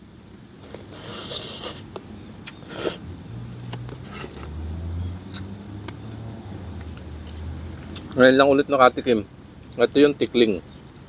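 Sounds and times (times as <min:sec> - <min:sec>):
insects droning: 0:00.0 - 0:11.0
chewing and lip smacks: 0:05.2 - 0:06.0.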